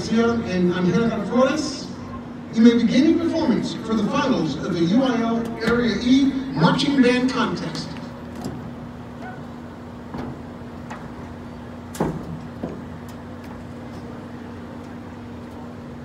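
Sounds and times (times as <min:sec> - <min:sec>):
low stadium hum: 0:00.0 - 0:16.0.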